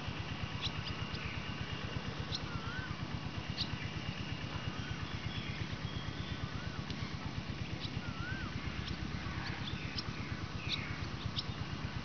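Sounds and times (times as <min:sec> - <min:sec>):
birds chirping: 0:00.1 - 0:12.0
bird warbling whistle: 0:02.3 - 0:03.0, 0:07.9 - 0:08.6.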